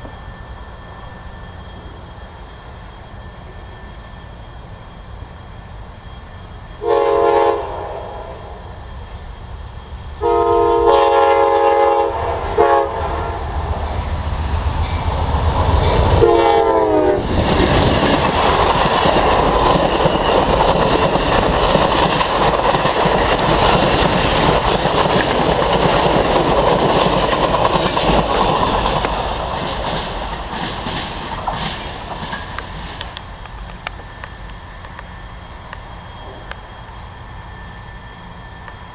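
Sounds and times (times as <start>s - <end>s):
diesel locomotive rumbling: 0.0s - 38.9s
train horn blast: 6.8s - 8.4s, 10.2s - 13.6s, 16.2s - 17.3s
train wheels clattering over rails: 13.8s - 35.1s.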